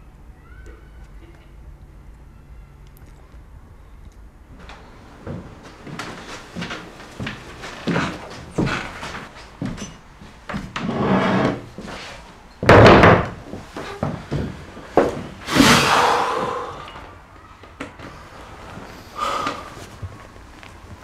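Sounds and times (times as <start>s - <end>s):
wooden chair scraping on floor: 5.3s - 9.9s, 10.5s - 16.7s
chair thudding on wooden floor: 12.6s - 15.8s.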